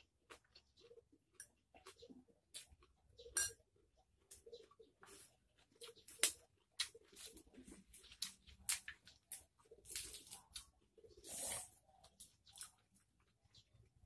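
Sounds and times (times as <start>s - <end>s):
wet chewing and lip smacks: 4.2s - 13.4s
leafy greens rustling and crackling: 4.4s - 13.4s.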